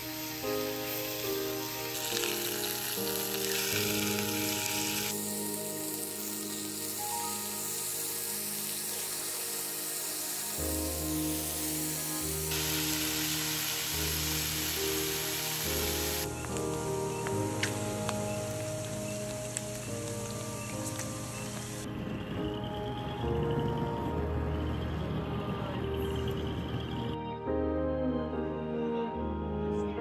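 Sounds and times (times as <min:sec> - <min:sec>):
pork sizzling in a pan: 0:00.0 - 0:21.8
background music: 0:00.0 - 0:30.0.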